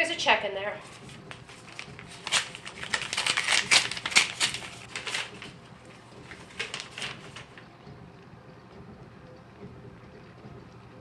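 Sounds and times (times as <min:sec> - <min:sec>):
envelope paper ripping: 0:00.8 - 0:05.6, 0:06.3 - 0:07.6
paper rustling: 0:00.8 - 0:07.6.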